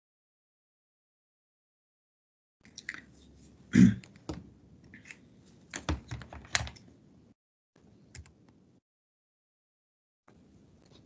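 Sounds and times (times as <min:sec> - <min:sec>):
keyboard and mouse clicks: 0:04.0 - 0:06.9, 0:08.1 - 0:08.6.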